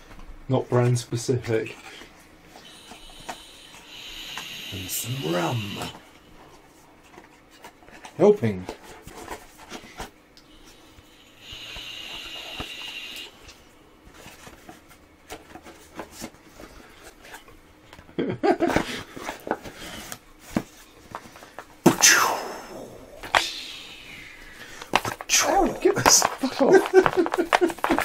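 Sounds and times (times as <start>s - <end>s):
short steady hiss: 2.6s - 6.0s, 10.9s - 13.5s
men laughing and snorting: 18.2s - 19.0s, 26.4s - 28.0s.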